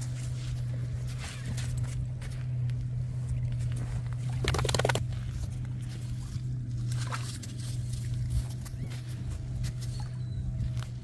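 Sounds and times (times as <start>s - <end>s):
steady low hum: 0.0s - 11.0s
faint chirp: 8.6s - 10.9s.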